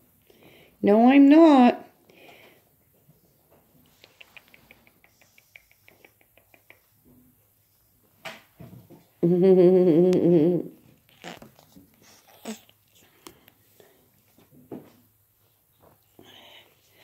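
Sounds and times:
woman humming: 9.2s - 10.8s.

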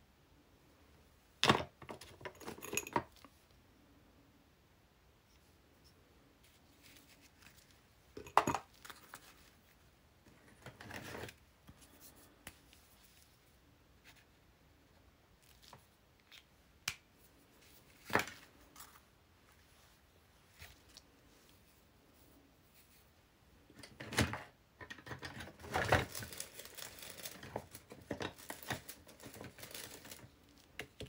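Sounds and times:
paper rustling: 6.4s - 7.8s, 25.6s - 31.0s.

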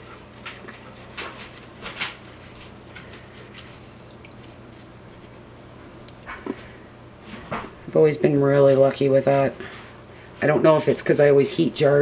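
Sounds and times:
rustling handling noises: 0.0s - 5.5s
steady low hum: 0.0s - 12.0s.

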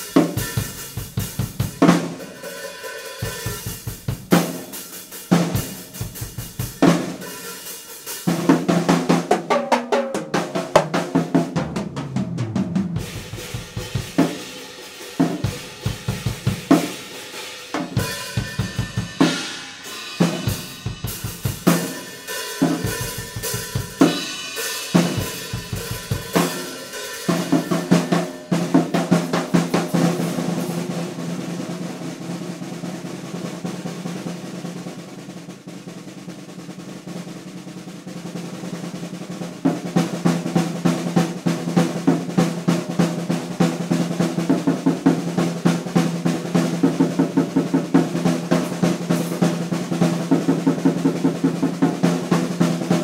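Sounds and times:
drum kit playing beat: 0.0s - 53.0s
cymbal crashes: 16.9s - 28.5s.

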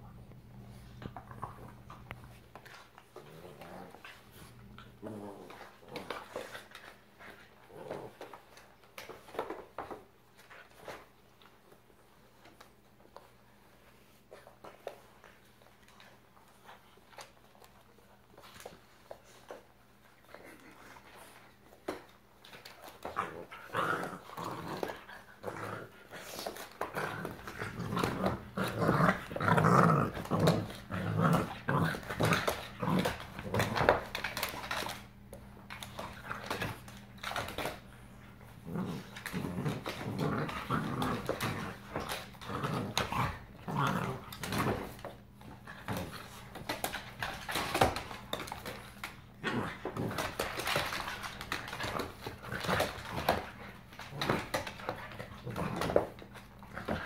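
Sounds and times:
dogs growling: 1.1s - 8.7s, 22.8s - 35.1s, 35.7s - 57.0s.

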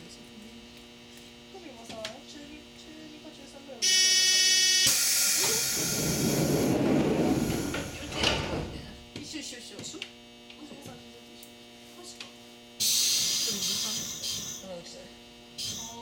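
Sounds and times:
electrical hum: 0.0s - 16.0s
train hiss and rumble: 4.9s - 9.0s.

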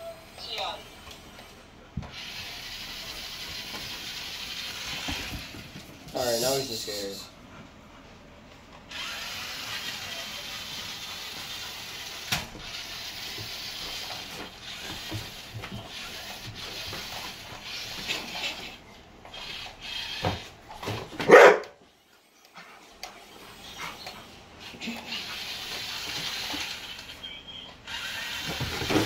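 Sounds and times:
toy motor and gears whirring: 2.1s - 5.6s, 8.9s - 20.6s, 23.5s - 29.0s
dog barking loudly: 21.2s - 21.8s.

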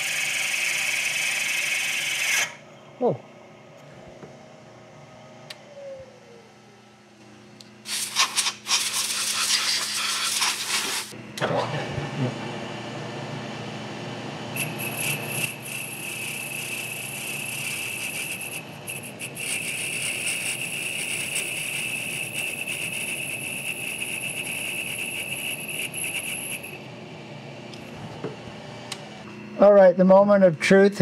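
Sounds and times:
milling machine spindle running: 14.5s - 26.8s
high-pitched cutting squeal: 14.6s - 26.8s.

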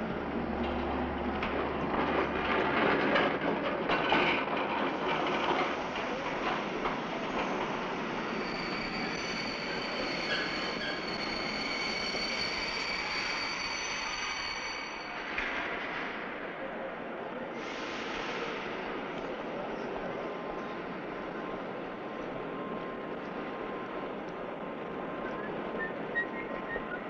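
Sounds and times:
train wheels rattling on rails: 0.0s - 16.8s
high-pitched metallic squeal: 7.4s - 15.4s.

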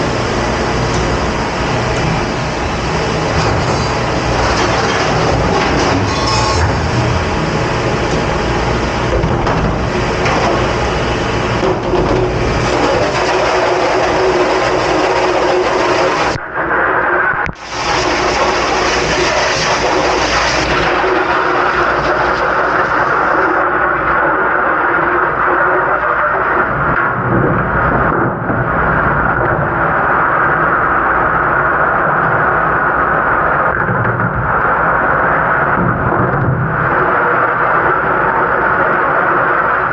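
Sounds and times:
dish machine spraying water: 0.0s - 16.4s, 17.6s - 26.9s
low rumble: 0.0s - 25.6s
spray nozzle water rushing hiss: 17.6s - 20.7s.

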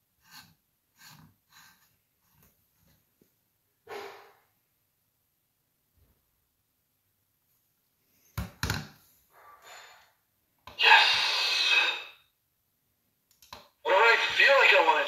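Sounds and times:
toy speaker voice clip: 10.8s - 12.1s, 13.9s - 15.0s.

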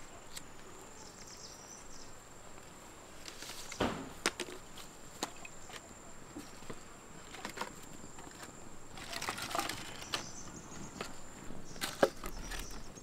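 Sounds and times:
high insect drone: 0.0s - 13.0s
firewood knocking together: 3.7s - 4.6s.

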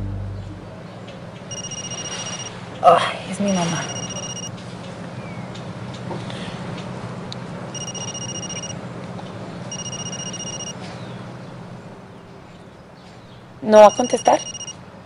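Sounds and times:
low hum: 0.0s - 0.8s
double-pitched ringtone beep: 1.5s - 2.5s, 3.6s - 4.5s, 7.8s - 8.8s, 9.7s - 10.7s, 13.8s - 14.7s.

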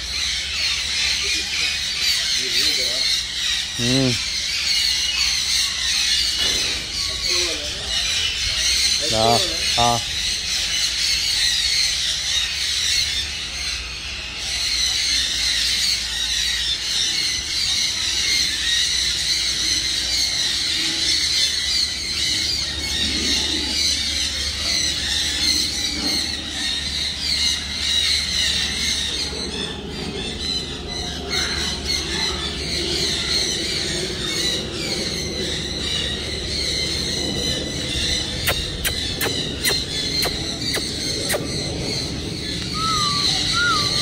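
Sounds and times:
chorus of birds chirping: 0.0s - 44.0s
low rumble: 32.5s - 44.0s.

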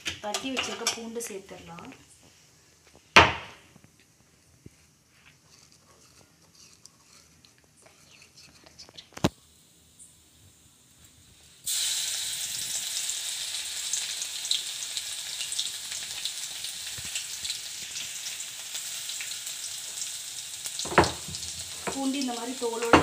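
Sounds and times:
garlic sizzling in hot oil: 9.2s - 23.0s.

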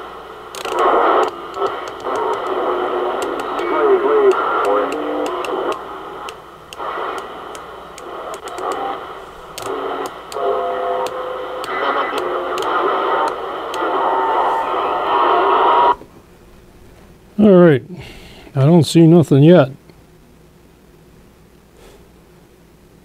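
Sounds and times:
distant radio voices: 0.0s - 16.0s
radio static: 0.0s - 16.0s
radio whistling tones: 0.7s - 16.0s.

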